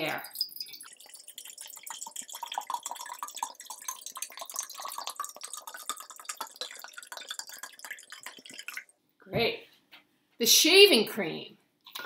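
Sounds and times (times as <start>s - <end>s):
water pouring into glass jar: 0.0s - 8.9s.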